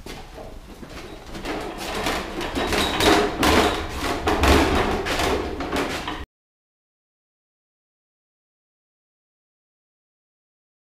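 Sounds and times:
cart rattling over concrete: 0.0 - 6.2.

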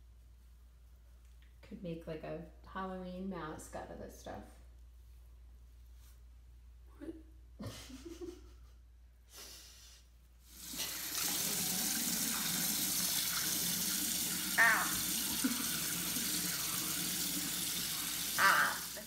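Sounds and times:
tap running into basin: 10.8 - 18.4.

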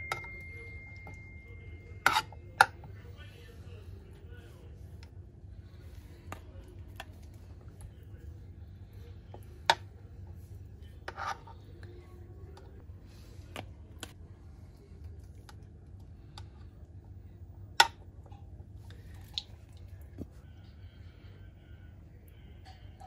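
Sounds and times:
sharp dish clink: 0.0 - 2.7
low steady hum: 0.0 - 23.0.

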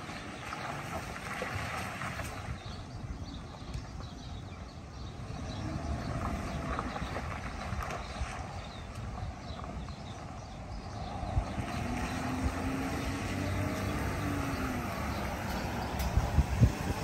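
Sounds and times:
distant pickup truck driving: 5.0 - 17.0.

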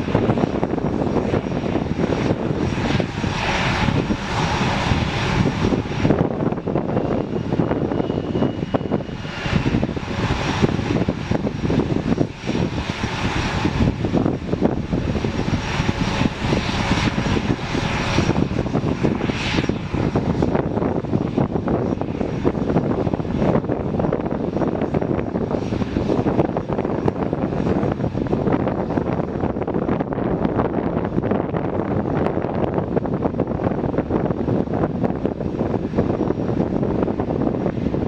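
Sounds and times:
jets taxiing: 0.0 - 38.0.

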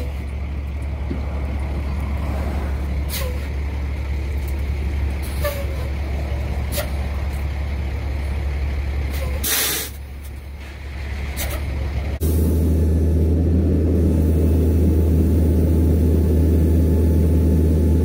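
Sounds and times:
vehicles swishing past: 0.0 - 9.4
traffic rumble: 0.0 - 18.0
loud hiss: 9.4 - 10.0.

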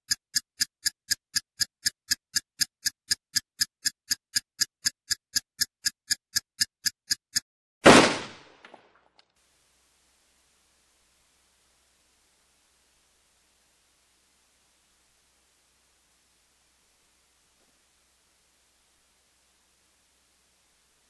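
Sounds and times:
clock-like ticking: 0.0 - 7.5.

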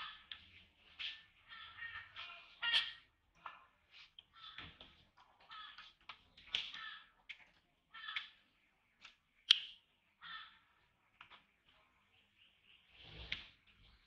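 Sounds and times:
baby monkey harsh calls: 1.5 - 3.1, 7.9 - 8.4.

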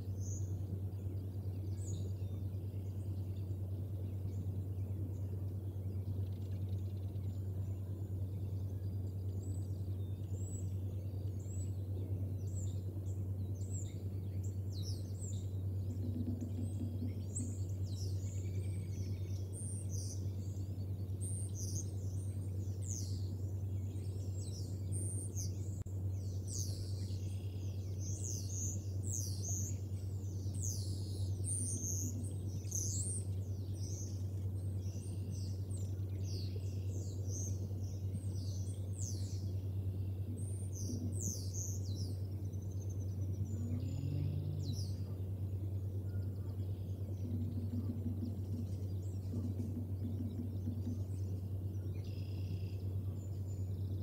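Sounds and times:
steady low hum: 0.0 - 54.0
eagle chicks peeping: 40.2 - 45.5, 46.2 - 52.9.

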